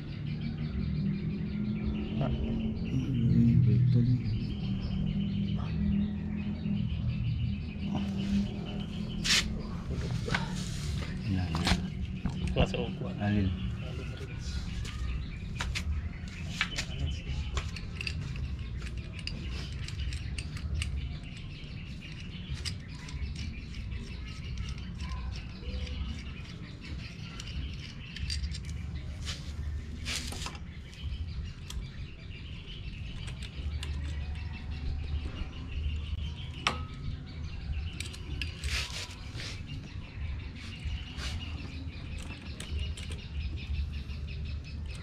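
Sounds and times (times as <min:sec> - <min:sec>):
faint birdsong: 0:00.0 - 0:45.0
steady low rumble: 0:01.1 - 0:24.8.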